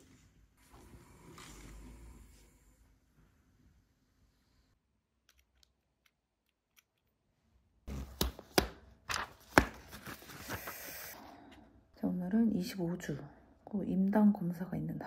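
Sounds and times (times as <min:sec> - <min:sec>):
paper rustling: 0:09.1 - 0:11.1.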